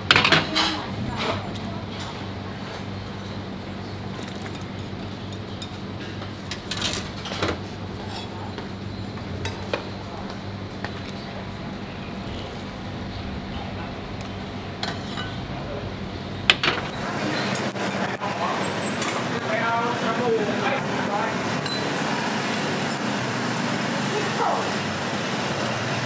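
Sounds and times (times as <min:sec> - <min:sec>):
low hum: 0:08.8 - 0:17.0.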